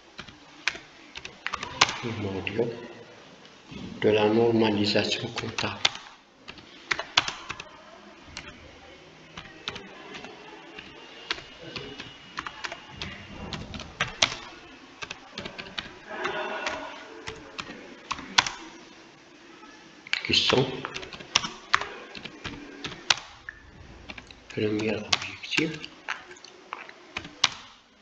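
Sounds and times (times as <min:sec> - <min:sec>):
typing on computer keyboard: 0:00.2 - 0:02.2, 0:05.3 - 0:07.7, 0:09.4 - 0:18.7, 0:20.1 - 0:27.8.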